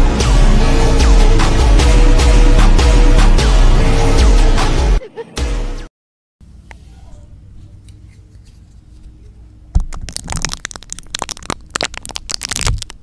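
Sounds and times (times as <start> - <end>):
rapid crackling scratching and tapping: 9.8 - 13.0.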